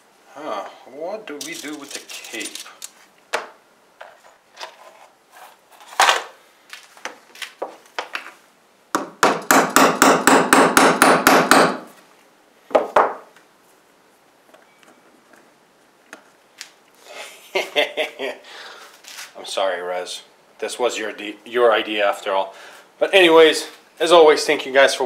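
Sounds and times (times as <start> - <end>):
hammer hitting nail: 9.0 - 11.9.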